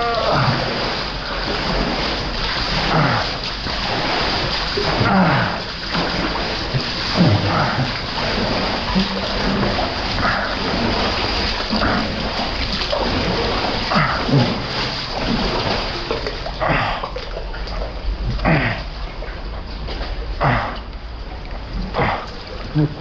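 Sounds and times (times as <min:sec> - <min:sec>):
river water rushing: 0:00.0 - 0:17.0
person splashing through water: 0:00.0 - 0:19.3, 0:21.7 - 0:23.0.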